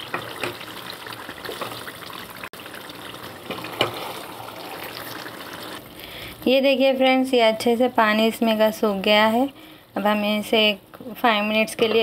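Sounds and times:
gravy simmering and bubbling: 0:00.0 - 0:06.4.

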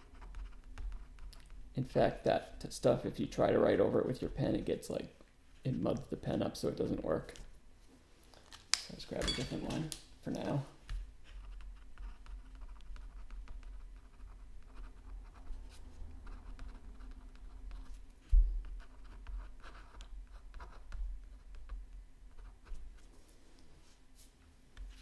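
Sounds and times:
pen scratching on paper: 0:00.0 - 0:01.6, 0:11.2 - 0:18.0, 0:18.6 - 0:23.0.

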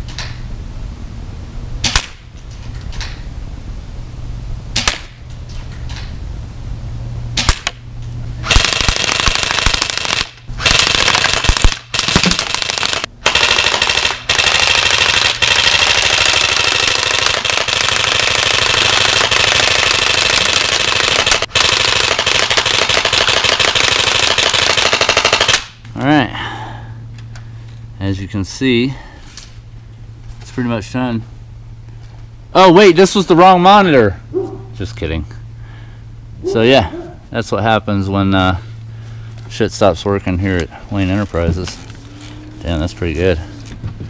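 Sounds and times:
airsoft guns firing full auto: 0:08.4 - 0:25.8
pellets smacking a screen: 0:08.5 - 0:14.2.

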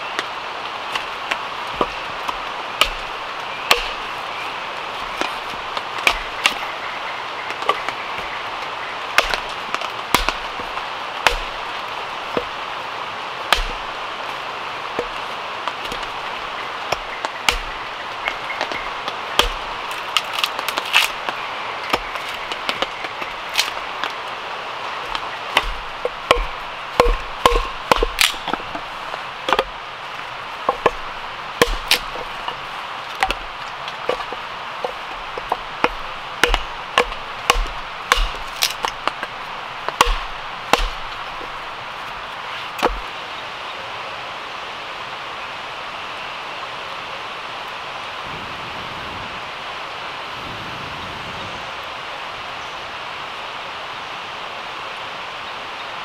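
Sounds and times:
hatchet chopping wood: 0:00.9 - 0:04.2, 0:05.0 - 0:06.7, 0:07.5 - 0:12.6, 0:13.4 - 0:24.2, 0:25.0 - 0:43.1.

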